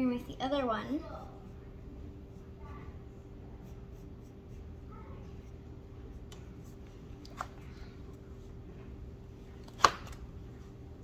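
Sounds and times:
steady low hum: 0.0s - 11.0s
pen scratching on paper: 3.6s - 6.8s.

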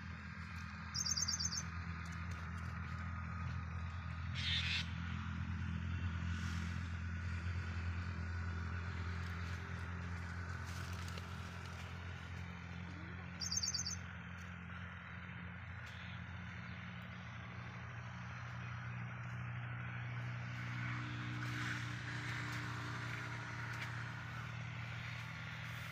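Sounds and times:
low motor hum: 0.0s - 25.9s
rapid high bird chirps: 0.9s - 1.7s, 13.4s - 14.0s.

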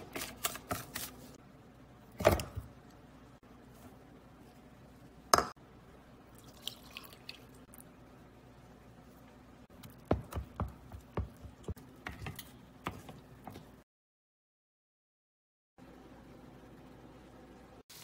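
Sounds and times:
spoon stirring thick batter: 9.7s - 13.8s.

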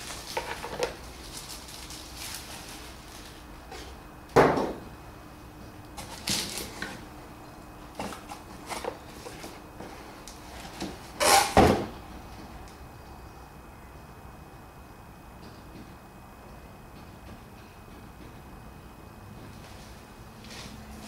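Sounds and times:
tools knocking on workbench: 4.4s - 4.8s.

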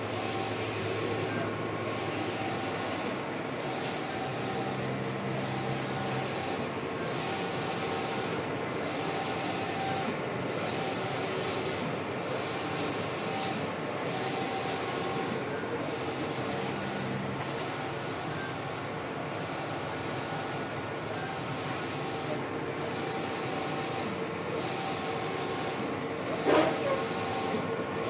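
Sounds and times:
printer carriage moving: 26.2s - 27.6s.

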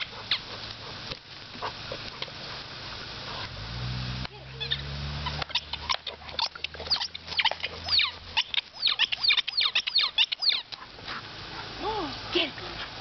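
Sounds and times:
squeaky toy ball squeaking: 4.6s - 10.6s.

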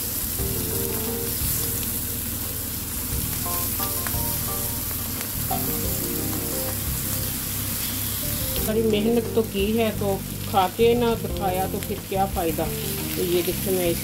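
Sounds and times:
vegetables sizzling on hot iron: 0.0s - 14.0s
soft background music: 0.1s - 14.0s.

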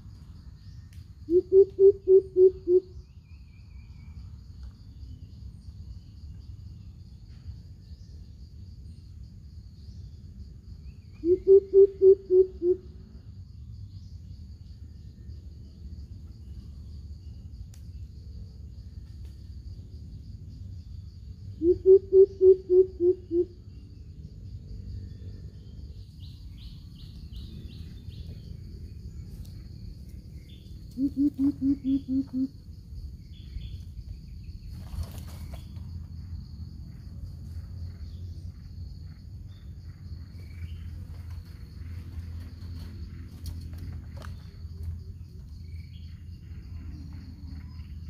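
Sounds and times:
high insect drone: 0.0s - 48.0s
bird giving deep hoots: 1.3s - 3.0s, 11.2s - 12.9s, 21.6s - 23.6s, 31.0s - 32.6s.

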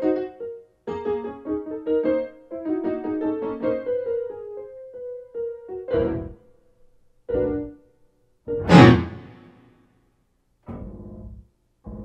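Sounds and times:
piano-like keyboard music: 0.0s - 6.5s, 7.3s - 7.9s, 8.5s - 9.5s.

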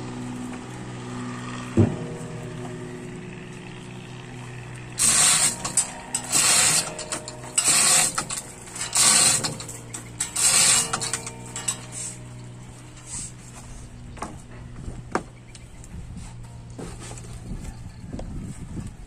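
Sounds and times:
chain hoist chain rattling: 4.9s - 12.4s.

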